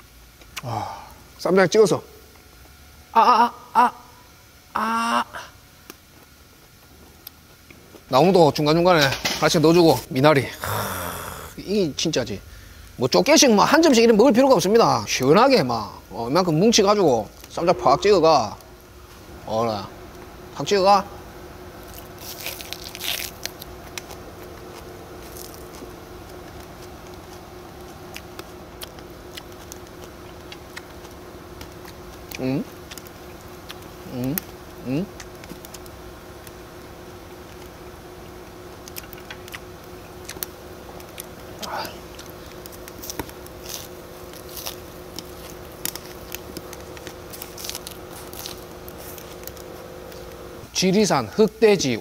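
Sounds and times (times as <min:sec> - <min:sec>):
steady low hum: 0:00.0 - 0:52.0
crunchy bite into greens: 0:10.6 - 0:11.6, 0:21.8 - 0:33.8, 0:38.8 - 0:50.5
chewing: 0:21.8 - 0:36.6, 0:38.8 - 0:50.5.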